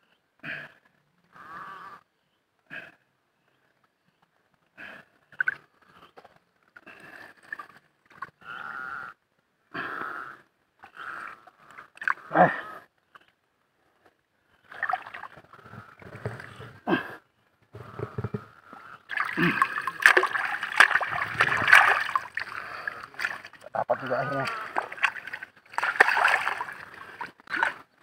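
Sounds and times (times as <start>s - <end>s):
muddy water sloshing and gurgling: 14.6s - 16.8s, 17.8s - 28.0s
hard wheezy breathing: 17.8s - 23.6s.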